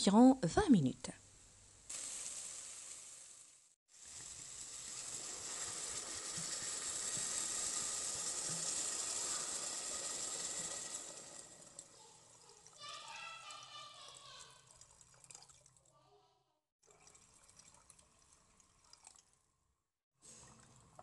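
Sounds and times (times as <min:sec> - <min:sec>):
water hissing in hot pot: 0:01.8 - 0:13.2
water pouring gurgle: 0:03.9 - 0:12.9, 0:14.2 - 0:15.9, 0:16.8 - 0:19.4.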